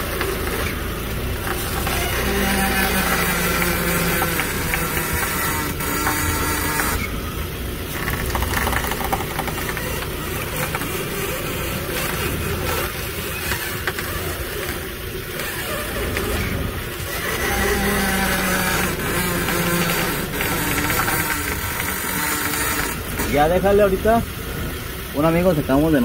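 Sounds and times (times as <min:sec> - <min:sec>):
suspension squeak: 0:00.0 - 0:24.9
car engine idling: 0:00.0 - 0:26.0.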